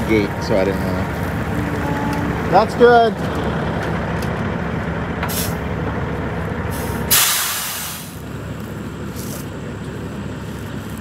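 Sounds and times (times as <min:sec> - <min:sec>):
diesel engine running: 0:00.0 - 0:11.0
air brake hiss: 0:05.3 - 0:05.6, 0:06.7 - 0:08.2.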